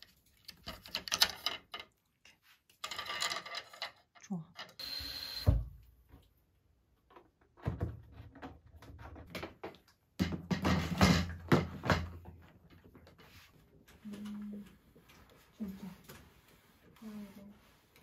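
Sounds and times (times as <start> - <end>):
plastic clunks and knocks: 7.1 - 12.4.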